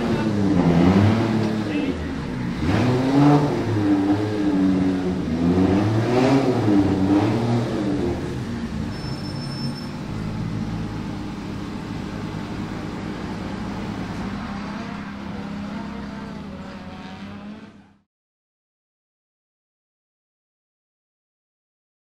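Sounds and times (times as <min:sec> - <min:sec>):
car engine idling: 0:00.0 - 0:05.6, 0:06.7 - 0:17.6.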